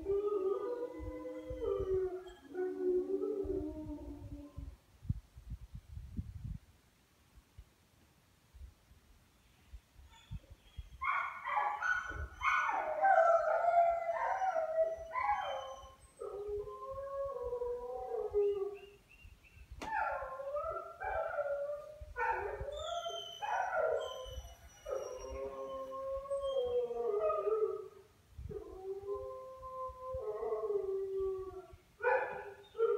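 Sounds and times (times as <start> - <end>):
dogs howling in chorus: 0.0 - 4.7, 11.3 - 18.9, 19.9 - 32.9.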